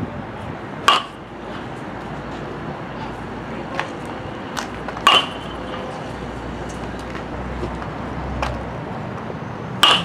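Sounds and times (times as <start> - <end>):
outdoor background noise: 0.0 - 10.0
metal bat striking ball: 0.8 - 1.2, 5.0 - 5.6, 9.8 - 10.0.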